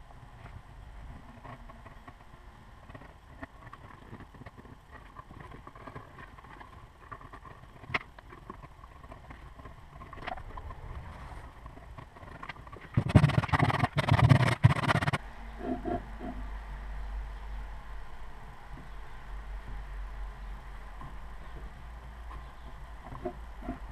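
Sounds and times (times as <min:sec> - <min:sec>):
low steady rumble: 0:00.0 - 0:23.9.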